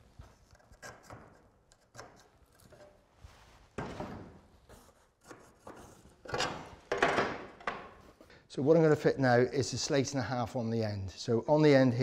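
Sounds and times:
pencil scraping slate edge: 0:00.4 - 0:02.9, 0:04.7 - 0:06.2.

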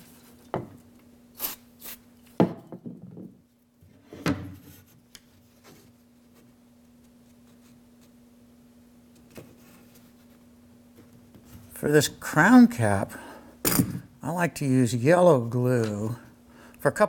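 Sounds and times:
knocks on wooden workbench: 0:02.4 - 0:03.4.

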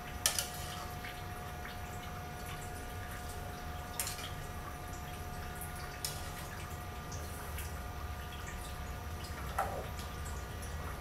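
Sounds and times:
wet stirring of noodles in broth: 0:00.0 - 0:04.6, 0:05.2 - 0:08.2.

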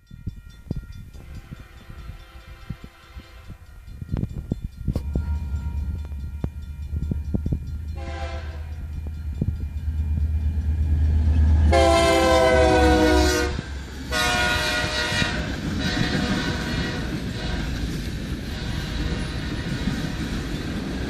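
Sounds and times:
locomotive air horn blasts: 0:01.2 - 0:03.7, 0:07.9 - 0:08.9, 0:11.7 - 0:17.8, 0:18.5 - 0:19.2
low engine rumble: 0:03.7 - 0:17.4.

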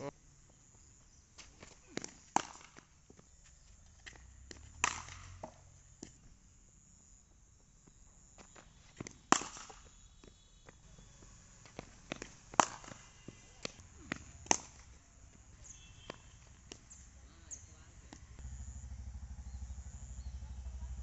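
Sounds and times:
cricket bat striking ball: 0:01.9 - 0:03.0, 0:04.0 - 0:06.2, 0:09.0 - 0:11.0, 0:11.8 - 0:15.0, 0:15.6 - 0:17.0.

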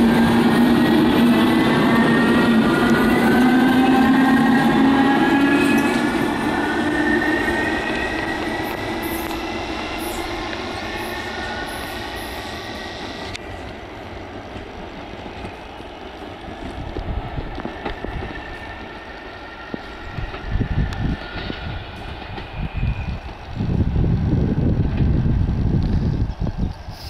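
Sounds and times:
wind buffeting microphone: 0:16.6 - 0:27.0.

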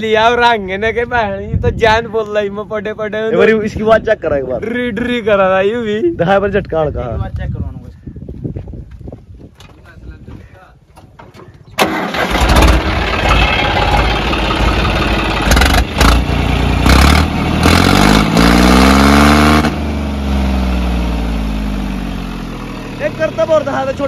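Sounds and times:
diesel tractor engine revving: 0:11.8 - 0:24.0.

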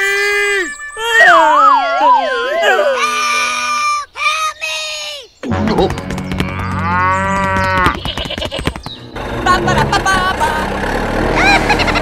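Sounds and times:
cattle mooing: 0:06.5 - 0:08.0.

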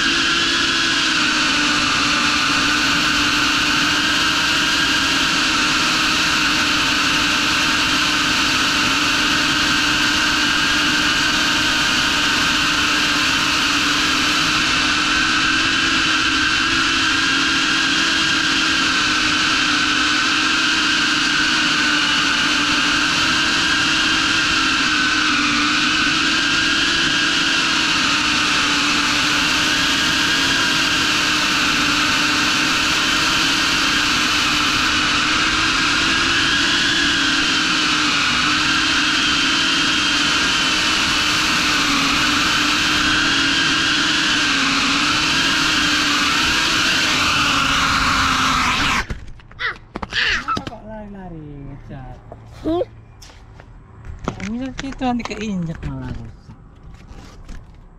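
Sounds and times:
drone motors whining: 0:00.0 - 0:50.8.

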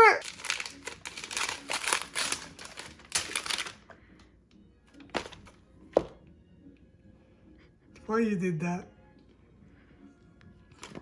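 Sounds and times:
wrapping paper tearing: 0:00.0 - 0:03.8.

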